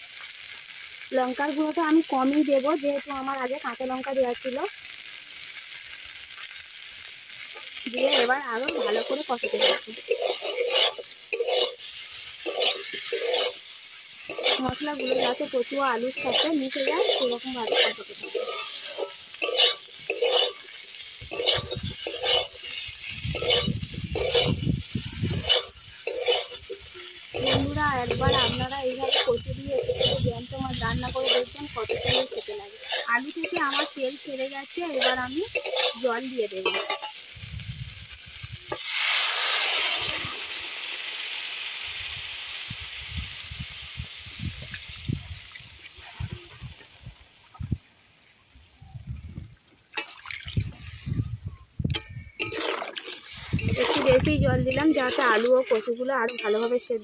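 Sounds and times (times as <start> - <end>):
light sizzle: 0.0 - 57.0
wooden spatula scraping pan: 7.9 - 11.8, 12.4 - 13.6, 14.3 - 20.7, 21.3 - 34.1, 34.8 - 37.1, 52.4 - 57.0.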